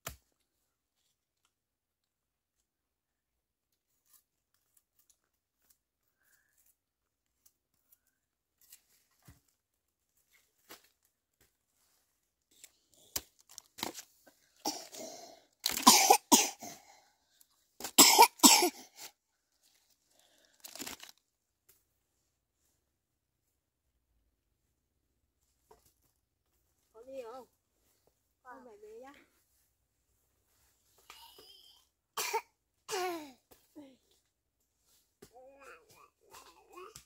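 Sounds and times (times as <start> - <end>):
person coughing: 14.7 - 16.8, 18.0 - 18.9, 32.2 - 33.4.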